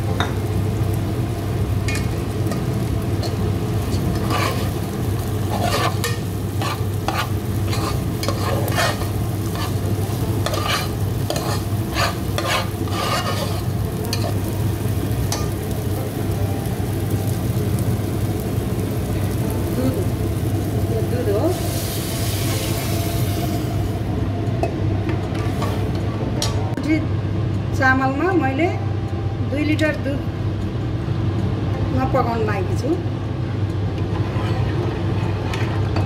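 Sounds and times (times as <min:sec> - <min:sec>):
food frying in a pan: 0:00.0 - 0:28.3
steady low hum: 0:00.0 - 0:36.0
spoon scraping a pan: 0:03.2 - 0:04.8, 0:05.5 - 0:14.4.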